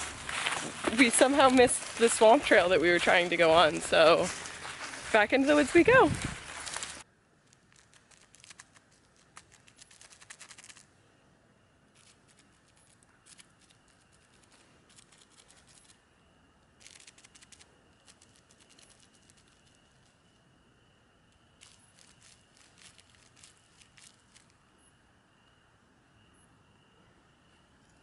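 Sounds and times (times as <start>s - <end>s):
dry leaf litter crackling: 0.0s - 10.9s, 16.8s - 20.3s, 21.5s - 24.6s.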